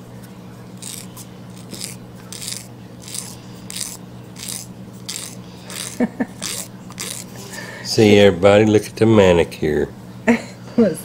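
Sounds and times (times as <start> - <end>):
emery board rasping strokes: 0.8 - 7.4.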